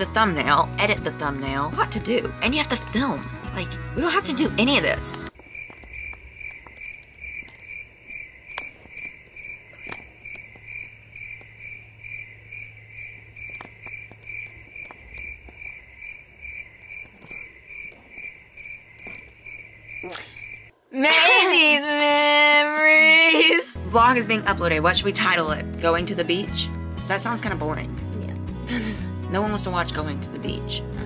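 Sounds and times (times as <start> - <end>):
cricket-like chirping: 5.3 - 20.8.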